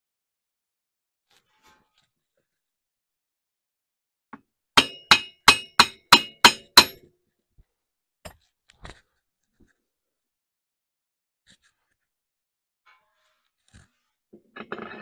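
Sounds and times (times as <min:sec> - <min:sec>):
metal-on-metal knocks: 0:04.8 - 0:07.0, 0:14.4 - 0:15.0.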